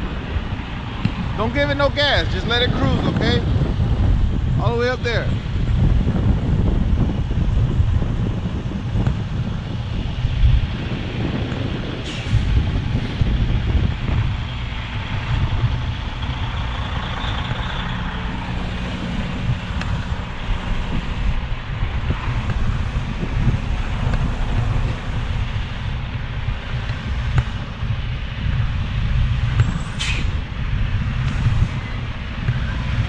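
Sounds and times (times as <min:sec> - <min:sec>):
diesel engine idling rumble: 0:00.0 - 0:33.0
brief sharp hiss: 0:30.0 - 0:30.4.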